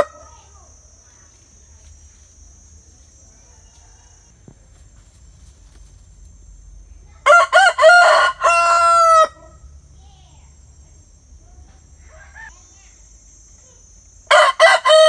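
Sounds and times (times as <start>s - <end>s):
rooster crowing: 0.0s - 0.2s, 3.4s - 4.4s, 7.2s - 9.6s, 14.3s - 15.0s.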